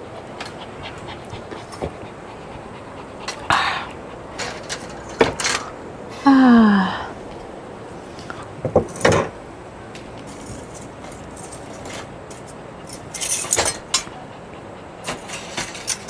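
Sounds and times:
grill grate clinking and scraping: 4.4 - 5.7, 10.3 - 14.1, 15.0 - 16.0.

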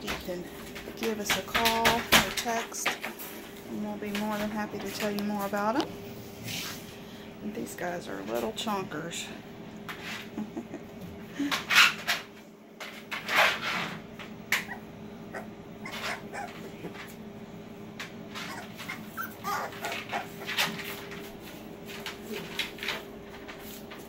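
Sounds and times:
steady low hum: 0.0 - 24.0
puppies whimpering and squeaking: 14.6 - 17.2, 18.3 - 20.7.

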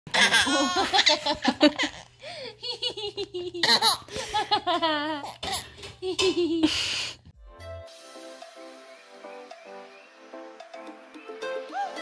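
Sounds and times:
baby giggling and laughing: 0.1 - 2.1
woman laughing: 0.4 - 5.4, 6.0 - 6.9.

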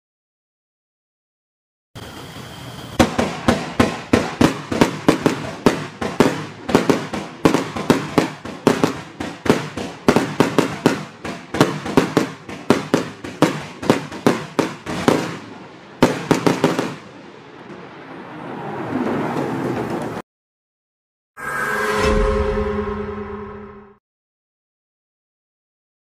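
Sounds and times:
fireworks cake firing: 2.0 - 18.1.

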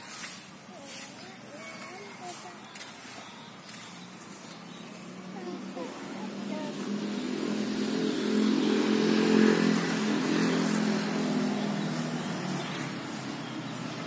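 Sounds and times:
vehicle engine driving past: 4.3 - 14.0.

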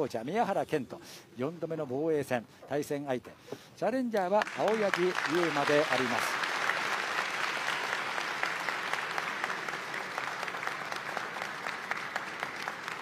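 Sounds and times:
crowd clapping: 4.3 - 13.0.

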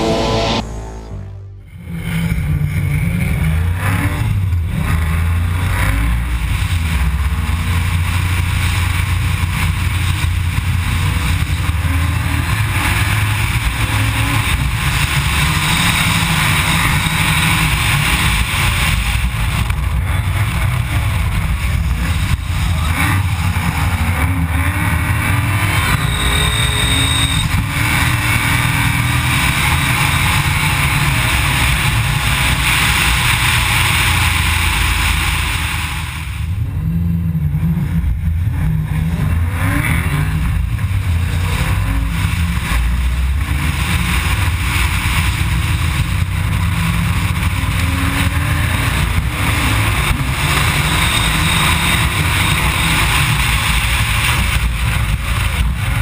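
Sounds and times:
car engine revving hard: 0.0 - 56.0.

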